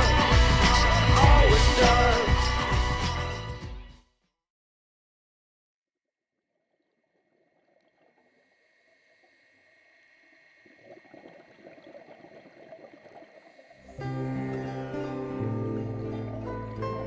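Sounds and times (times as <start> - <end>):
underwater bubbling and gurgling: 6.6 - 17.0.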